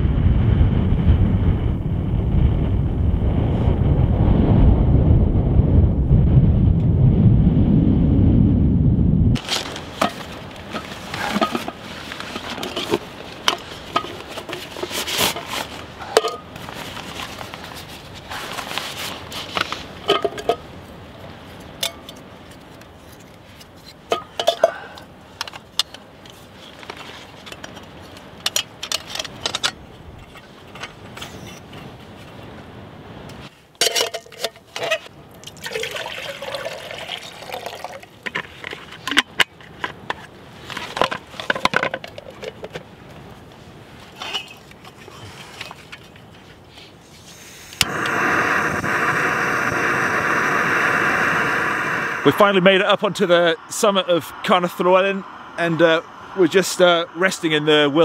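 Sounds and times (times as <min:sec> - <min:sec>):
stove parts clicking and clattering: 0:09.4 - 0:17.0, 0:19.4 - 0:20.7, 0:21.7 - 0:31.9, 0:33.7 - 0:35.1, 0:38.2 - 0:42.9, 0:44.2 - 0:46.3
steady rushing noise: 0:47.5 - 0:58.0.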